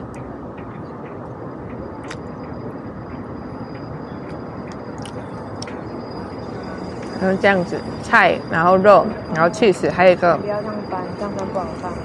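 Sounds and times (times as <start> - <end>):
passing traffic hum: 0.0 - 12.0
thin high steady tone: 1.1 - 12.0.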